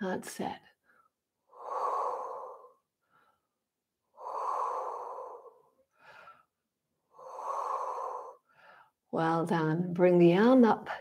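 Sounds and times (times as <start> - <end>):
woman breathing deeply: 0.8 - 9.0.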